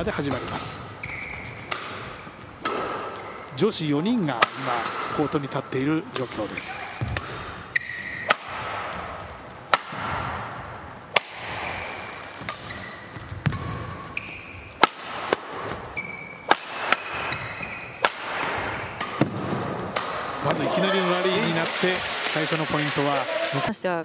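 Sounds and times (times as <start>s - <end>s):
shoes squeaking on court: 0.0s - 3.5s, 6.3s - 14.8s, 15.5s - 19.9s
rackets hitting shuttlecock: 0.2s - 3.6s, 4.2s - 23.7s.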